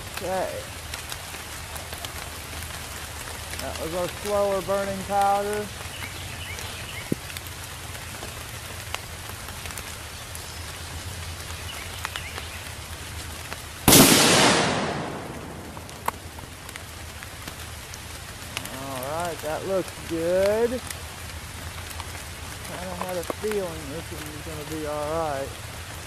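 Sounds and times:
steady rain falling: 0.0 - 26.0
rifle shot: 13.9 - 16.2.

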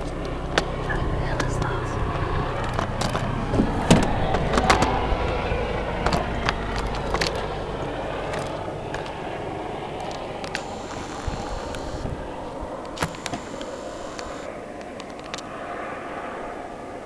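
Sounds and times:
distant helicopter rumble: 0.0 - 17.0
sharp clicks: 10.0 - 12.1, 12.8 - 15.5.

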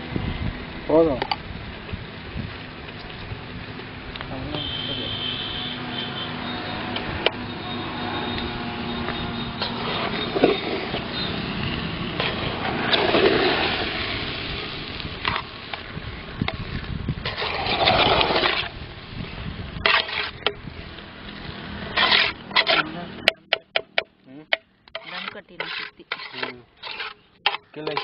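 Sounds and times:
ladle scraping rice in metal pot: 17.2 - 18.7, 19.8 - 20.4, 21.9 - 23.0, 24.9 - 28.0.

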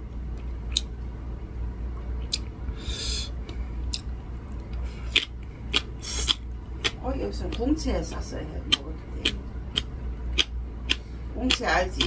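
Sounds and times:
steady low hum: 0.0 - 12.0
person chewing: 0.4 - 1.0, 2.0 - 7.6, 8.7 - 12.0.

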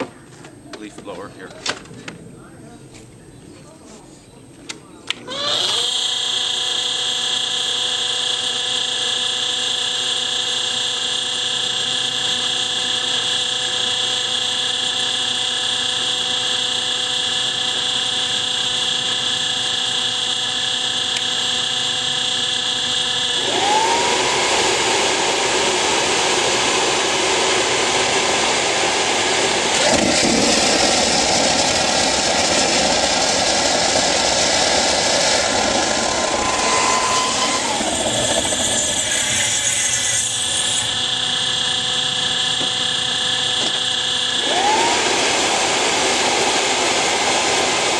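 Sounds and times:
leaf blower whine: 5.1 - 47.9
jet engine rough rush and whine: 9.4 - 39.6, 40.4 - 47.9.

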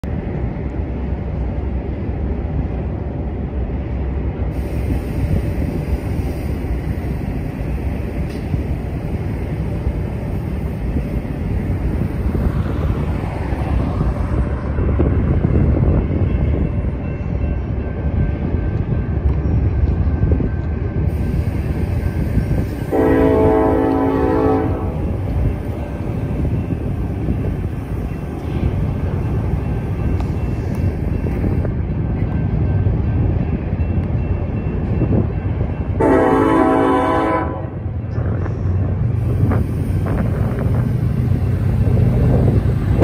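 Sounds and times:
train air horn blast: 22.8 - 25.1, 36.0 - 37.8.

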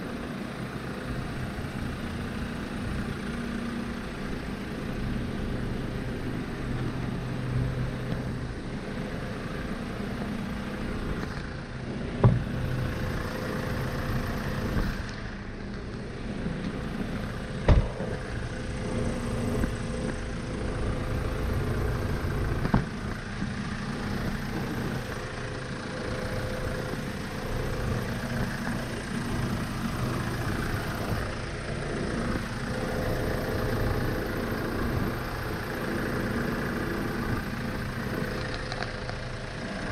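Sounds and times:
diesel engine idling: 0.0 - 39.9
sharp knocks: 12.2 - 12.6.

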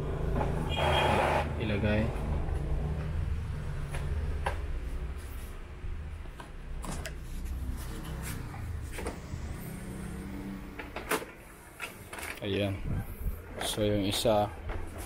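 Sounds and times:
printer motor hum: 7.6 - 12.1.

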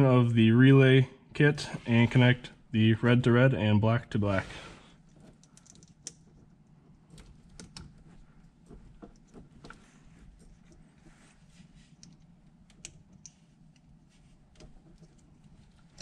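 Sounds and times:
wire connectors clicking: 5.0 - 11.0, 11.9 - 16.0.

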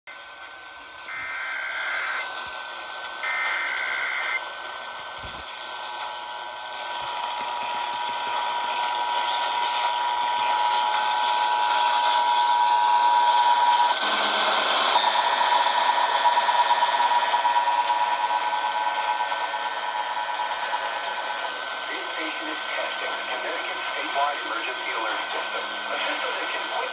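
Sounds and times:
screeching data bursts: 1.0 - 2.3, 3.2 - 4.4
two-tone attention signal: 1.1 - 2.2
radio static hiss: 1.1 - 2.5, 3.2 - 4.5, 21.9 - 26.9.

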